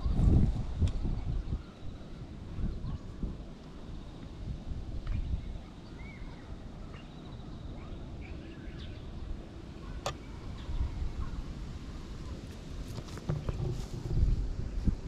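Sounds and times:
wind rumbling on microphone: 0.0s - 15.0s
faint bird chirps: 5.2s - 11.4s.

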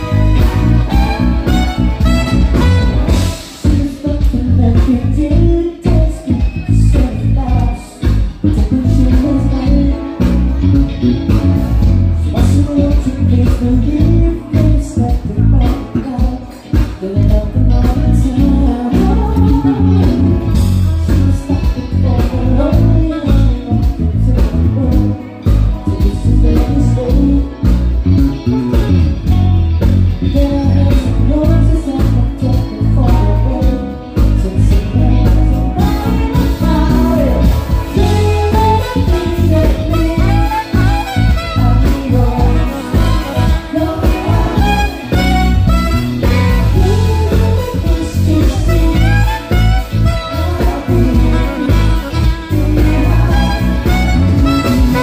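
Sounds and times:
wavering lead melody: 0.0s - 4.0s, 25.1s - 55.0s
guitar: 0.0s - 55.0s
heavy bass line: 0.0s - 55.0s
live band music: 0.0s - 55.0s.

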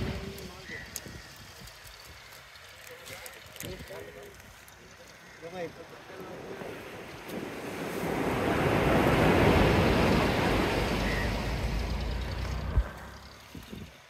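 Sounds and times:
sea wave breaking: 6.3s - 13.3s.

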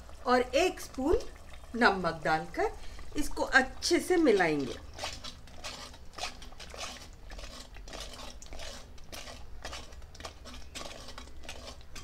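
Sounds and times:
spoon scraping a pan: 3.8s - 12.0s.

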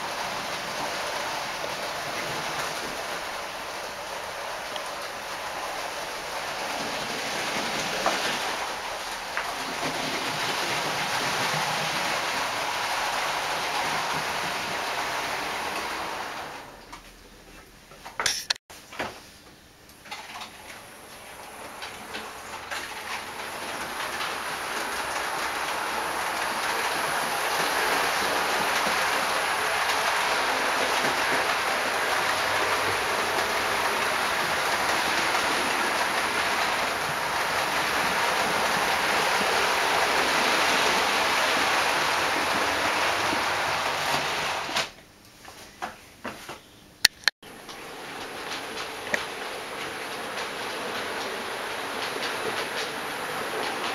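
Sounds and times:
model trains rumbling on track: 0.0s - 16.6s, 21.0s - 44.8s, 47.5s - 53.9s
sharp clicks: 47.0s - 47.3s.

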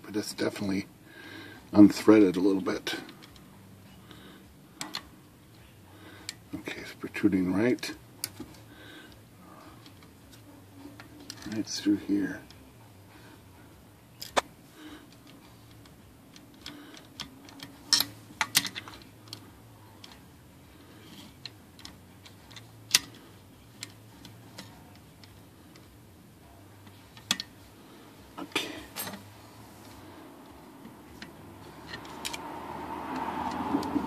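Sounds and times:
screwdriver clicking on metal parts: 15.1s - 19.4s.

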